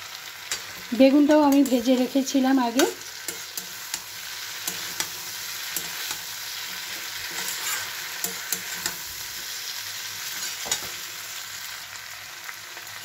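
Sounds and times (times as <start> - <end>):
vegetables sizzling in oil: 0.0 - 13.0
metal spatula scraping pan: 2.8 - 9.6, 10.2 - 11.1.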